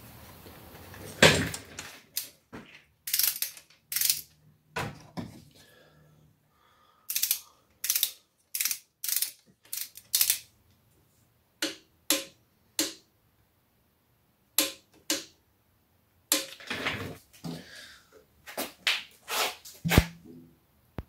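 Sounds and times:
ratchet wrench clicking: 0:03.1 - 0:04.3, 0:07.1 - 0:10.5.

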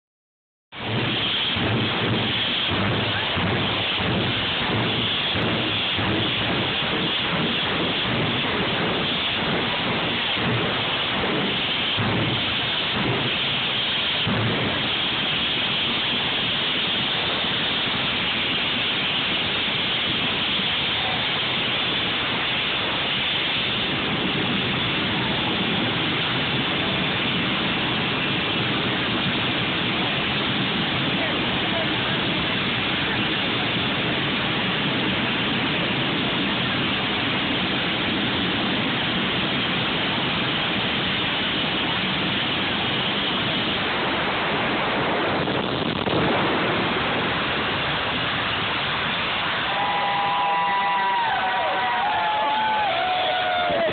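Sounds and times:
jet engine roaring: 0:00.7 - 0:53.9.

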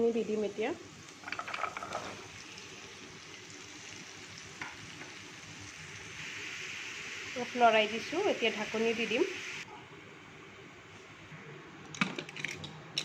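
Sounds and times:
food sizzling in hot oil: 0:00.1 - 0:09.6.

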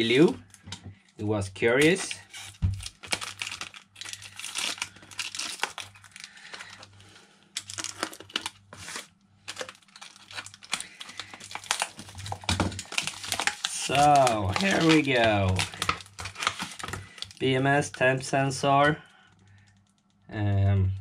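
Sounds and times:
plastic wrap crinkling and tearing: 0:01.8 - 0:18.3.

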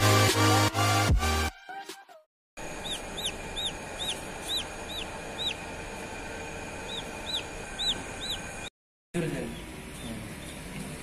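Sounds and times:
chick peeping: 0:02.6 - 0:05.7, 0:06.8 - 0:08.7.

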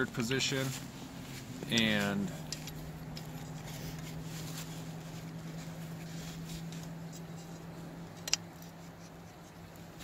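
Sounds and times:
folding shovel parts scraping: 0:00.4 - 0:09.1.

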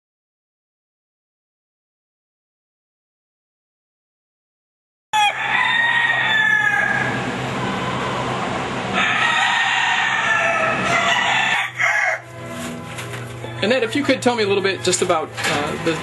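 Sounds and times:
roosters crowing: 0:05.1 - 0:16.0.

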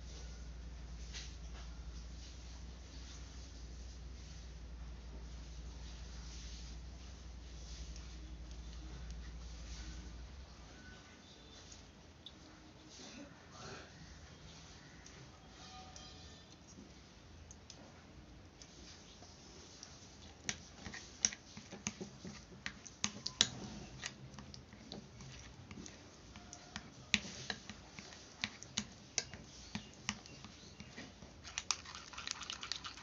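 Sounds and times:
spoon scraping glass bowl: 0:25.1 - 0:33.0.

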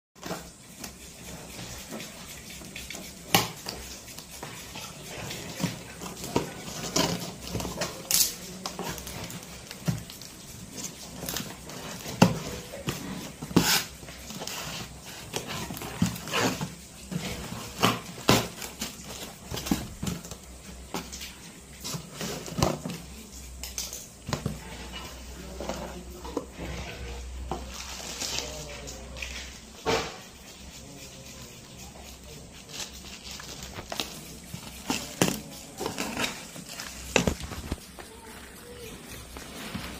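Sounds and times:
bubble wrap rustling: 0:02.6 - 0:39.9
scissors cutting packing tape: 0:07.0 - 0:09.4.

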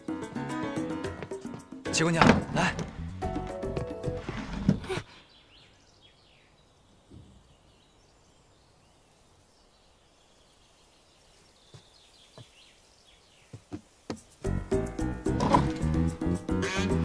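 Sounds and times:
quiet bird chirps: 0:05.1 - 0:14.1.

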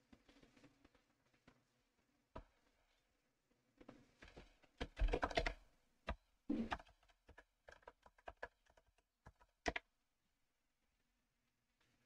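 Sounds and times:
typing on computer keyboard: 0:04.9 - 0:05.6, 0:06.7 - 0:09.8.

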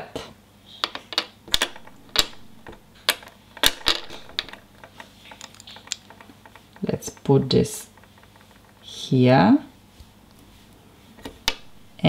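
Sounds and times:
plastic toy parts clicking: 0:00.9 - 0:09.0.

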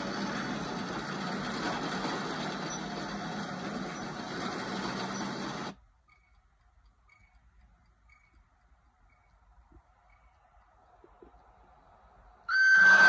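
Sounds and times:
faint high ticks: 0:05.7 - 0:12.5.

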